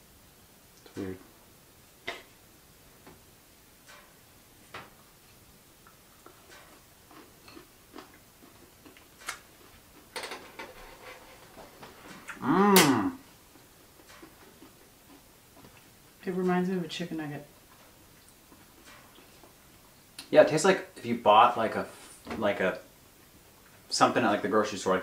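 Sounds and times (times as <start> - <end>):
person humming mmm: 12.2 - 13.3.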